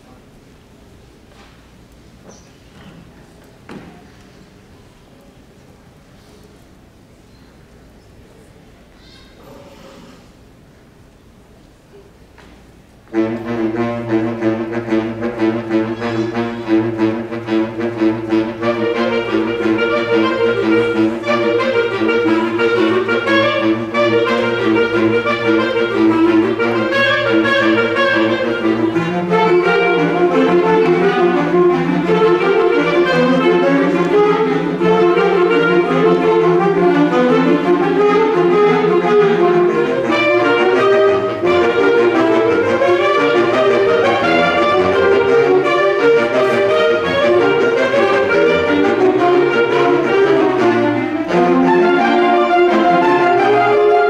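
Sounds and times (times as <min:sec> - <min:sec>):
symphonic band playing: 0:13.0 - 0:54.0.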